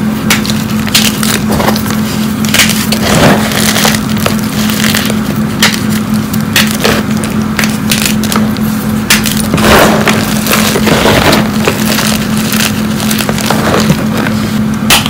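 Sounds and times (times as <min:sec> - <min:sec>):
chalk lumps crunching: 0:00.8 - 0:06.1.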